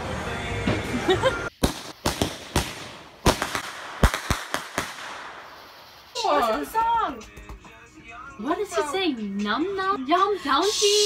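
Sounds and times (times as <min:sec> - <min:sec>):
fireworks bangs and crackles: 0:01.5 - 0:06.1.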